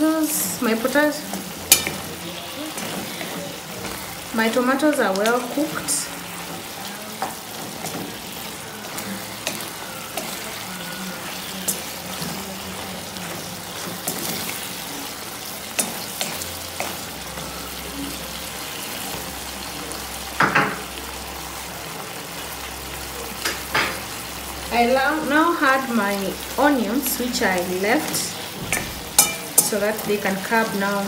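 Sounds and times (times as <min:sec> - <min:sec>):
food sizzling in a frying pan: 0:00.0 - 0:31.0
wooden spoon stirring and scraping: 0:00.8 - 0:17.5
spoon knocking against pan: 0:28.1 - 0:29.8.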